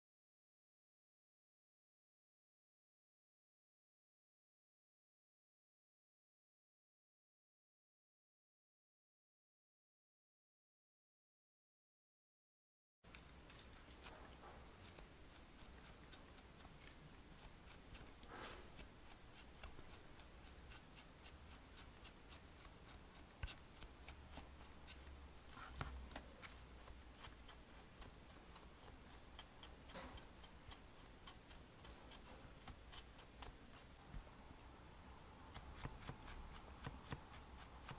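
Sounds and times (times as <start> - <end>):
felting needle scratching wool: 13.5 - 34.2, 35.5 - 37.9
soft rustles: 24.8 - 29.0.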